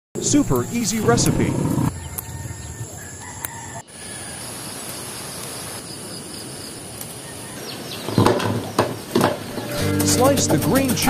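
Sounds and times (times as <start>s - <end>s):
outdoor background noise: 0.2s - 10.0s
rooster crowing: 1.7s - 4.6s, 7.2s - 8.0s.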